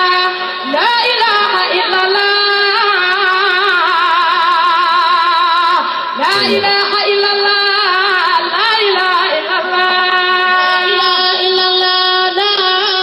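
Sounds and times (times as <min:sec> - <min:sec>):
person chanting with held notes: 0:06.2 - 0:06.8.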